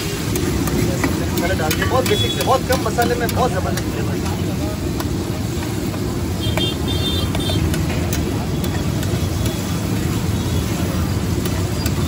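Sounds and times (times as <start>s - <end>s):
butter frying on a pan: 0.0s - 12.0s
metal spatula tapping a pan: 0.3s - 9.7s.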